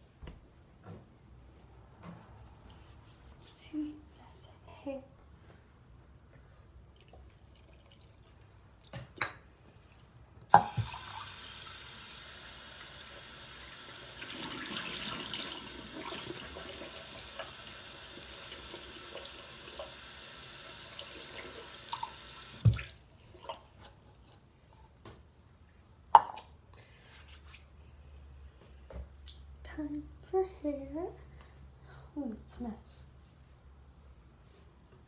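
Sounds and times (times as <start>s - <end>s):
water running into basin: 7.0s - 8.9s, 10.6s - 23.7s.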